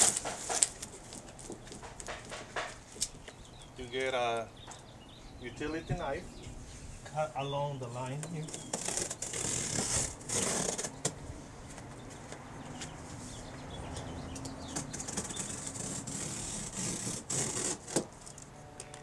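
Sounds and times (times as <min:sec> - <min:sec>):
utility knife cutting cardboard: 0:08.5 - 0:11.1, 0:14.7 - 0:18.3.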